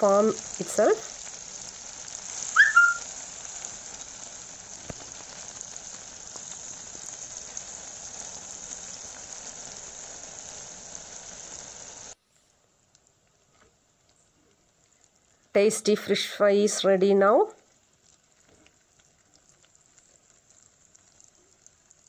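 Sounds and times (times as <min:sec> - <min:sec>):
fish deep-frying sizzle: 0:00.0 - 0:22.0
brief high squeak: 0:02.6 - 0:03.0.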